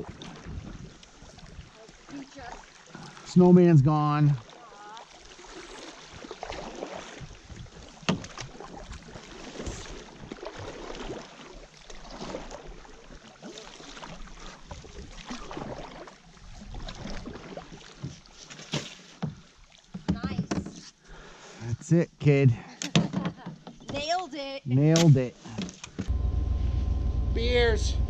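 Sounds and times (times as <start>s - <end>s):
water dripping from paddles: 0.0s - 12.5s
paddles stroking through water: 0.0s - 21.8s, 22.7s - 24.6s, 25.3s - 27.8s.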